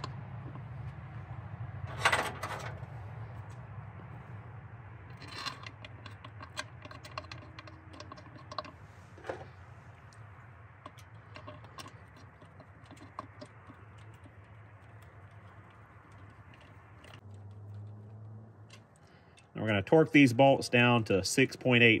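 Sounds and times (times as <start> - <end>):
metal bolts clicking and tapping: 0.0 - 0.7, 1.9 - 4.1, 5.0 - 18.0.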